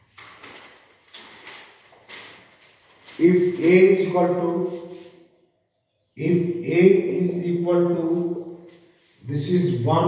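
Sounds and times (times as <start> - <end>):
rubbing swishes: 0.0 - 5.4, 8.0 - 9.3.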